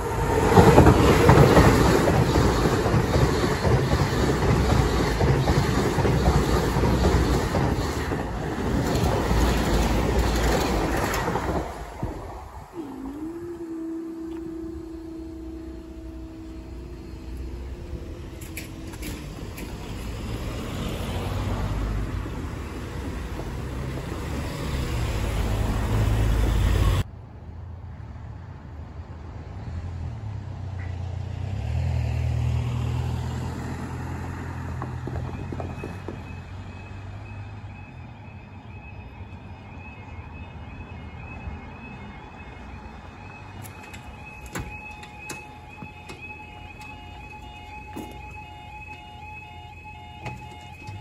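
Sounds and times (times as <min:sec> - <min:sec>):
vehicles driving over crossing: 0:00.0 - 0:27.1, 0:29.2 - 0:51.0
high-pitched warning alarm: 0:12.8 - 0:21.2, 0:35.2 - 0:51.0.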